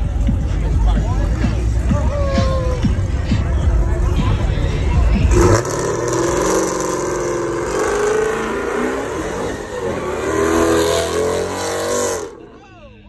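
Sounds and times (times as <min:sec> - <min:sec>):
car engine revving hard: 0:05.1 - 0:12.6.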